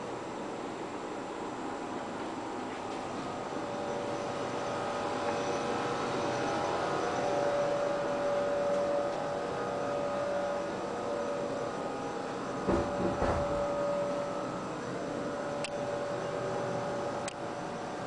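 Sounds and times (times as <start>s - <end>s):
steady hum with held tones: 0.0s - 18.0s
short knocks: 12.7s - 13.6s.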